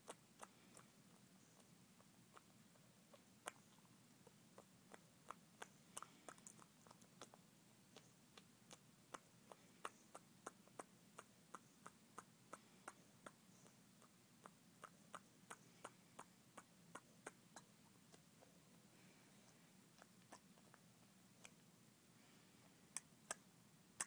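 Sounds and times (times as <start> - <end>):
dog lip smacking: 2.3 - 18.5, 19.9 - 21.6.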